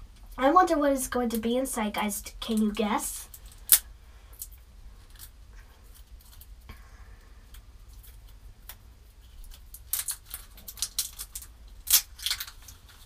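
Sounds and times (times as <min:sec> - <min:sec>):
plastic packaging crinkling: 0:07.9 - 0:13.0.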